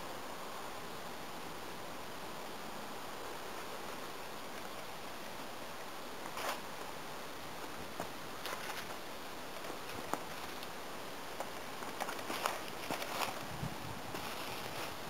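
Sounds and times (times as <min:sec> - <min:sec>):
steady hiss: 0:00.0 - 0:15.0
footsteps in grass: 0:11.4 - 0:15.0.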